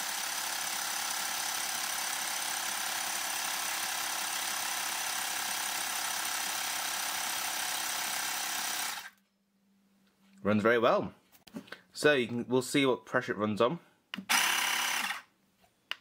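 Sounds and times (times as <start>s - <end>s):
air compressor humming: 14.2s - 15.2s.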